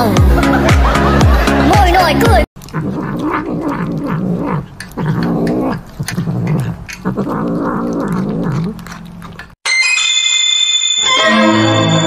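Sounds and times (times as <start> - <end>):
cat growling: 2.6 - 9.5
chewing clicks: 2.6 - 9.6.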